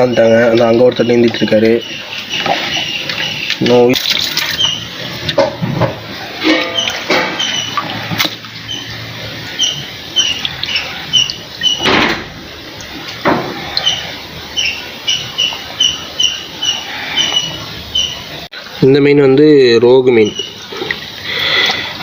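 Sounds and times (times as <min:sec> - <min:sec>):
water splashes: 0:00.0 - 0:18.8, 0:20.0 - 0:22.0
small animal chirping: 0:09.5 - 0:11.8.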